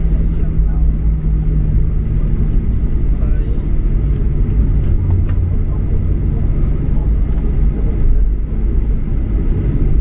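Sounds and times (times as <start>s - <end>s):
airliner cabin low rumble: 0.0s - 10.0s.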